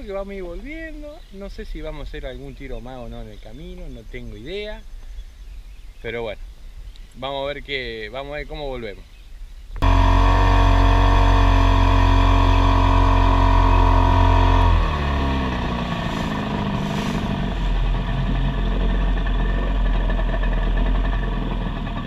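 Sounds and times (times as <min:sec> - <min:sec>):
outboard motor running: 0:09.8 - 0:22.0.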